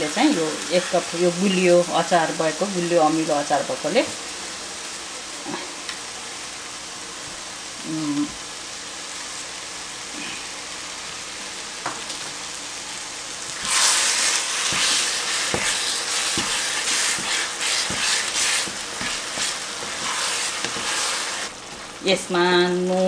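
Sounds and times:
food sizzling in a frying pan: 0.0s - 23.0s
spatula scraping and knocking pan: 13.6s - 21.5s.

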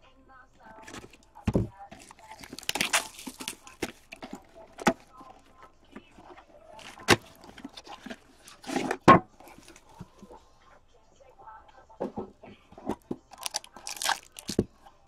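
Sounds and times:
shrink wrap crackling and tearing: 1.9s - 5.0s, 13.3s - 14.6s
sharp snaps of wrap and box: 2.0s - 5.0s, 13.3s - 14.7s.

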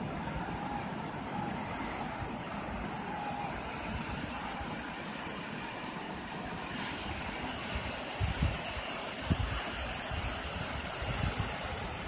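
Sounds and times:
sea surf washing onto beach: 0.0s - 12.0s
wind buffeting microphone: 7.1s - 12.0s.

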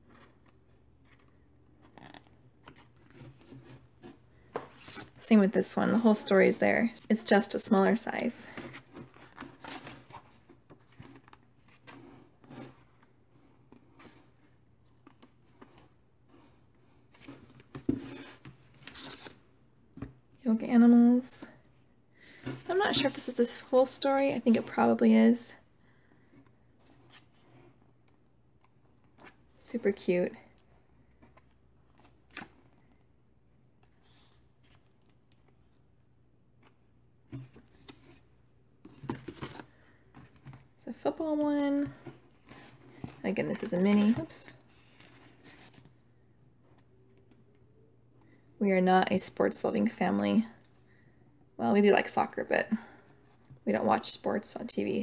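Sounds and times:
book pages flipping: 0.0s - 5.3s, 5.9s - 20.2s, 36.6s - 40.8s, 41.6s - 46.0s
book pages turning: 17.1s - 19.4s, 41.6s - 46.0s.

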